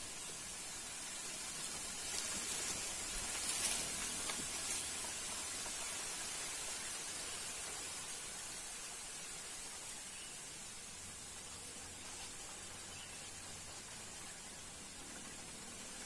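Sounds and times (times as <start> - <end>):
outdoor ambience hiss: 0.0 - 16.0
faint rustles and ticks: 1.3 - 8.0.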